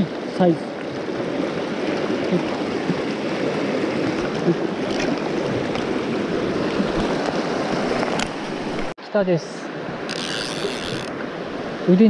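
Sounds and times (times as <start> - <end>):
stream rushing over rocks: 0.0 - 9.0.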